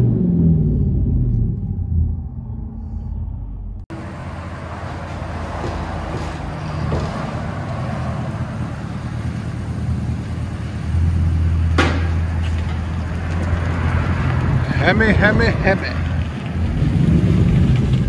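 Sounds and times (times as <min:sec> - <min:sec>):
vee eight engine idling: 0:03.9 - 0:16.8.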